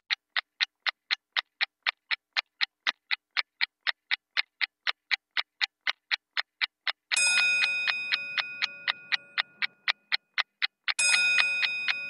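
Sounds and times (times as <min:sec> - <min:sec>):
clock ticking: 0:00.1 - 0:12.0
bright bell chime: 0:11.0 - 0:12.0.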